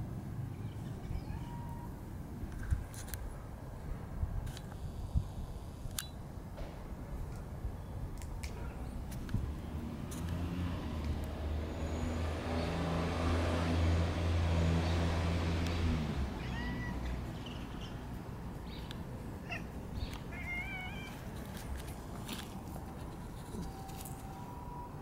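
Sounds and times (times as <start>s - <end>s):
cat meowing: 1.0s - 1.9s, 16.4s - 17.2s, 19.4s - 21.2s
passing vehicle engine hum: 8.9s - 25.0s.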